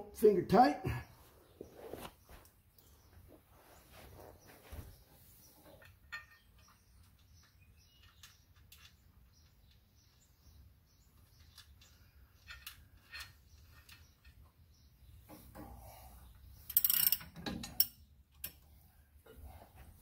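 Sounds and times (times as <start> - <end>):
faint clicks of bolt threading: 5.7 - 9.9, 11.1 - 14.6, 16.7 - 19.4.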